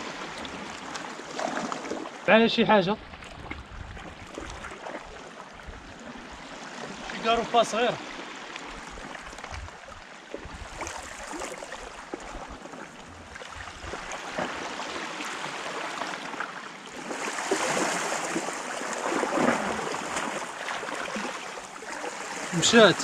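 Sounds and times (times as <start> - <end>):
wind rumble on microphone: 3.0 - 7.0, 8.7 - 14.6
waves splashing against rocks: 13.4 - 23.0.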